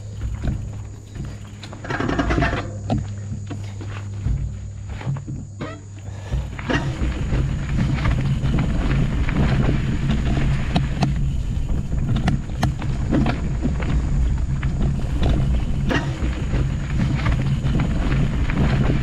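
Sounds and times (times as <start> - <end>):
bike clicks and rattles: 0.0 - 19.0
wind buffeting microphone: 6.2 - 19.0.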